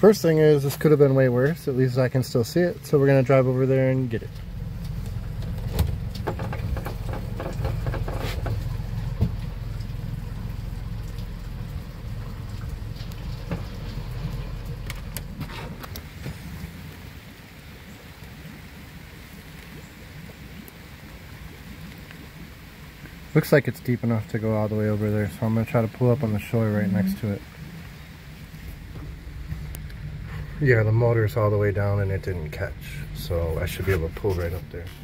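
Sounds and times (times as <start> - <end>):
rain on roof and windows: 0.0 - 35.0
low rumble: 1.2 - 17.4, 25.2 - 35.0
light clicks and knocks: 4.2 - 16.4.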